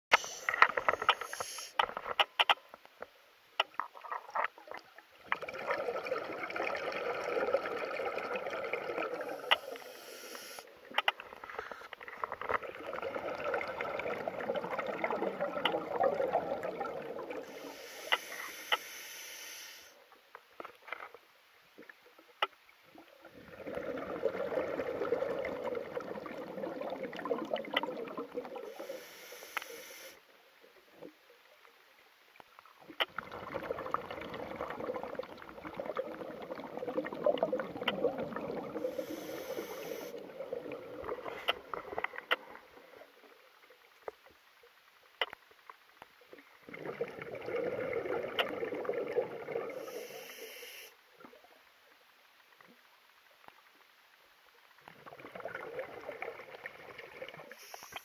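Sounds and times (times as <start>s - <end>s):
diver exhaling bubbles underwater: 4.0s - 9.9s, 11.2s - 18.6s, 23.0s - 29.0s, 33.1s - 43.2s, 46.6s - 50.2s, 54.9s - 57.8s.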